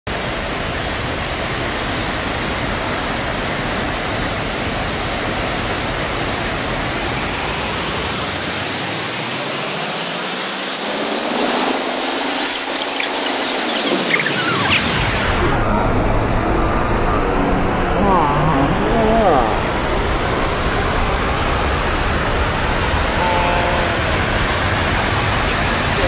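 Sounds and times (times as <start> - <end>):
heavy rain hissing: 0.2 - 15.5, 18.3 - 26.0
low rumble: 13.6 - 26.0.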